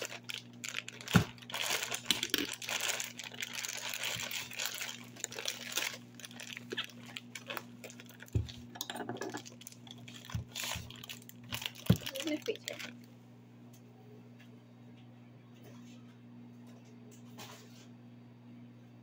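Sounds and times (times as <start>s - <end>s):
plastic bag crinkling: 0.0s - 13.1s
steady low hum: 0.0s - 19.0s.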